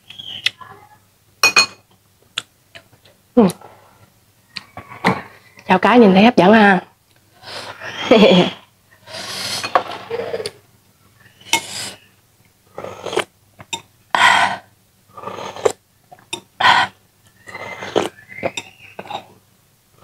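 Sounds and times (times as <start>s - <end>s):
person slurping soup: 9.0s - 10.6s, 12.7s - 13.3s, 14.5s - 15.8s, 16.6s - 18.2s.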